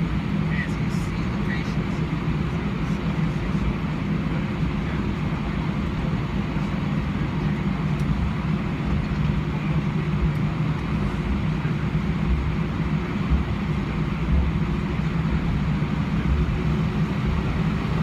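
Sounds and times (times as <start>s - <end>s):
aircraft cabin engine hum: 0.0s - 18.0s.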